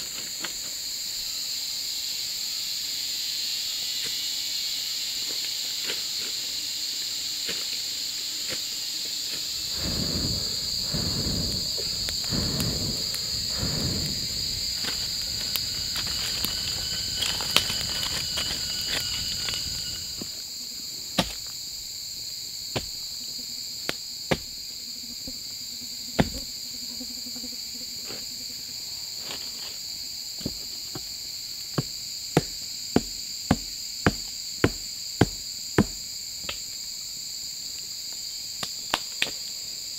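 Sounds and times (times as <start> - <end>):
high-pitched insect chorus: 0.0 - 39.9
wood being chopped: 31.8 - 36.0.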